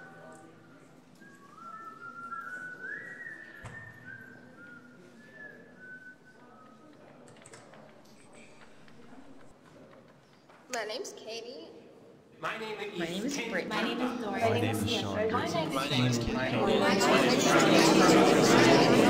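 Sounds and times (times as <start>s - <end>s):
person whistling a slow tune: 0.4s - 7.0s.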